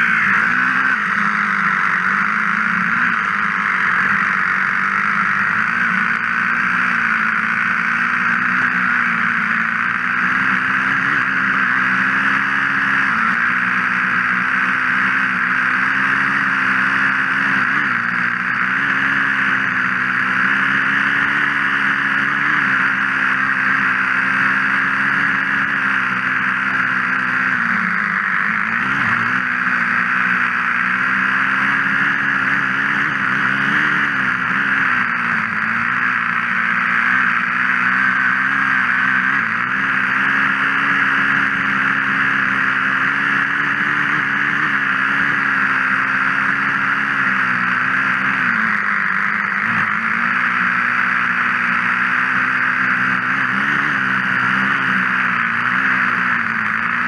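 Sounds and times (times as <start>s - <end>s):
small engine running: 0.0s - 57.0s.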